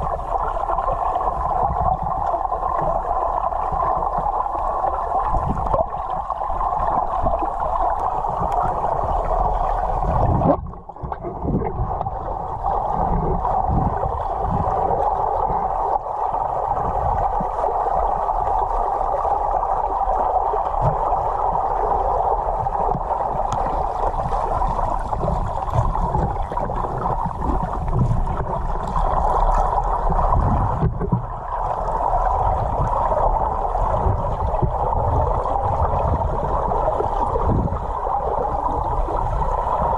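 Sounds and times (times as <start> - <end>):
underwater rush of water: 0.0 - 39.9
low underwater thuds: 10.0 - 12.2, 22.5 - 31.8.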